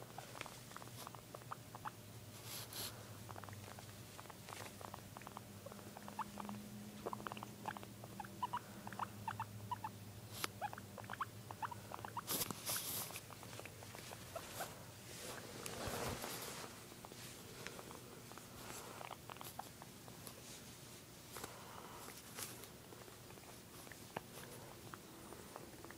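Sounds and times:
guinea pig squeaking: 0.1 - 14.8, 18.8 - 20.4
rustling of handled animal: 2.3 - 3.0, 12.2 - 25.5.

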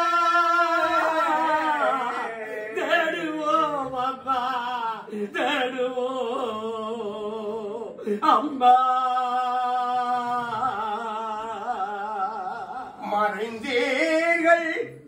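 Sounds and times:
person singing a lament: 0.0 - 15.0.

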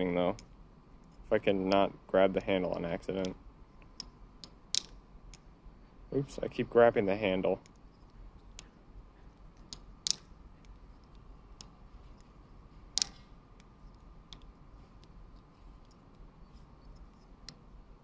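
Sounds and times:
plastic knife handles clicking: 9.6 - 12.3, 12.9 - 16.1.

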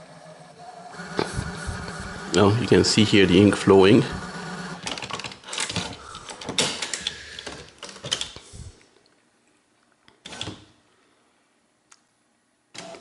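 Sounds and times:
printer cleaning mechanism whirring: 0.0 - 7.6.

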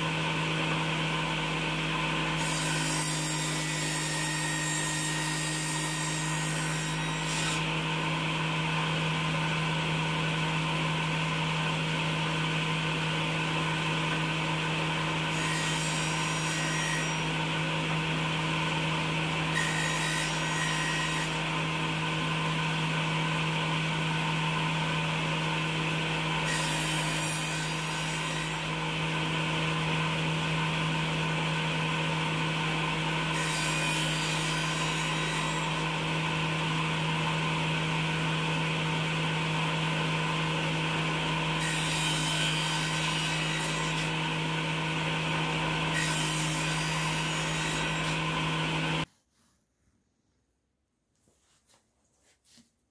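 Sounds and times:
table saw motor hum: 0.0 - 49.1
saw blade cutting wood: 2.3 - 7.8, 15.2 - 17.4, 19.4 - 21.7, 26.4 - 28.9, 33.3 - 36.1, 41.6 - 44.4, 45.3 - 49.1.

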